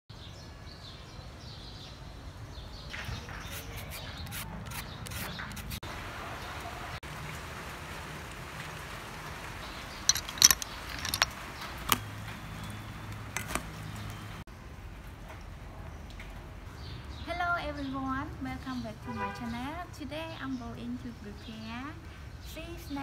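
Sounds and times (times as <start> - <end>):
mango grating: 3.4 - 5.8
shells knocking together: 10.1 - 11.3.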